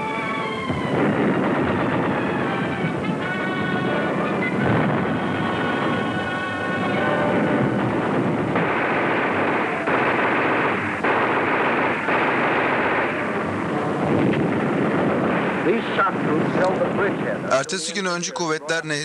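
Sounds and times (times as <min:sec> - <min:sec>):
continuous rumble: 0:00.0 - 0:19.0
heavy guns firing: 0:00.6 - 0:17.4
shells exploding: 0:00.6 - 0:17.4.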